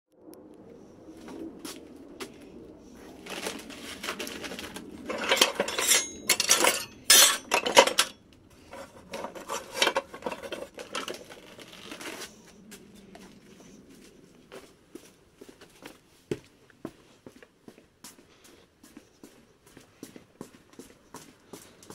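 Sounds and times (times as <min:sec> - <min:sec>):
frying pans clanking on scrap metal: 0:05.1 - 0:11.2.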